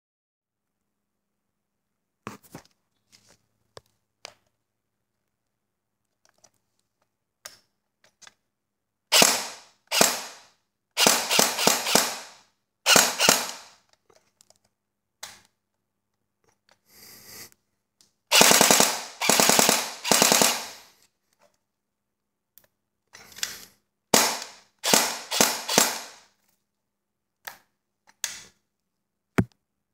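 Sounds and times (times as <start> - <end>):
airsoft gun rapid clacking shots: 9.1 - 10.4, 11.0 - 13.7, 18.3 - 20.8, 24.2 - 26.2.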